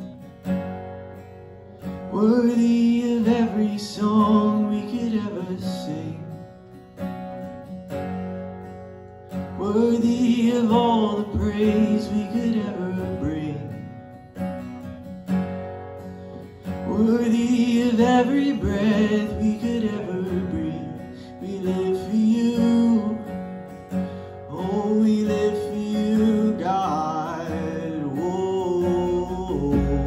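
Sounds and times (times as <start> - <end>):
acoustic guitar strumming: 0.0 - 30.0
man singing into a microphone: 2.0 - 6.5, 9.5 - 14.1, 16.8 - 23.5, 24.4 - 30.0.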